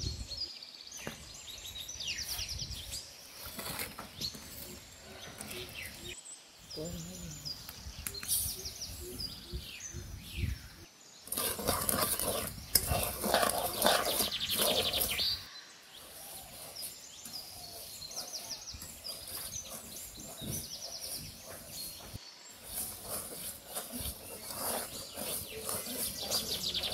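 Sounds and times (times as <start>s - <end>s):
small birds chirping: 0.0s - 26.9s
rattling scraping noise: 11.3s - 15.4s.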